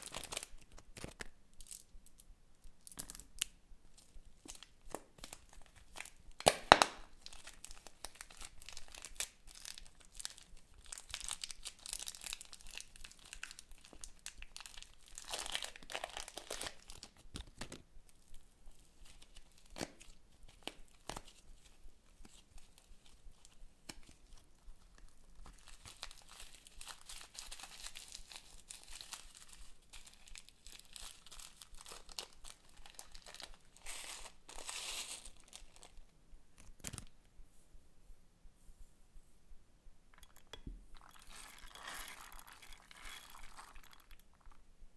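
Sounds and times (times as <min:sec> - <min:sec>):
zip-lock bag crinkling: 0:00.0 - 0:01.8, 0:25.5 - 0:36.0, 0:40.2 - 0:44.6
plastic packaging crinkling and tearing: 0:00.0 - 0:01.9, 0:02.8 - 0:17.8, 0:19.0 - 0:37.2, 0:40.2 - 0:44.6
clay being kneaded: 0:00.0 - 0:44.9.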